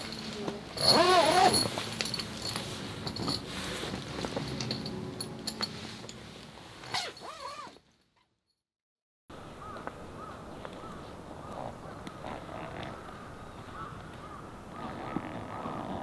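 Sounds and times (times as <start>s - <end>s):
low hum: 0.0s - 6.9s
birds calling: 9.6s - 15.8s.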